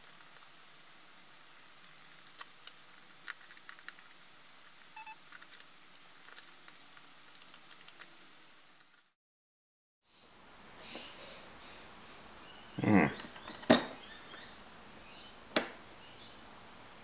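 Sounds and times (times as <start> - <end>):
steady hiss: 0.0 - 9.2.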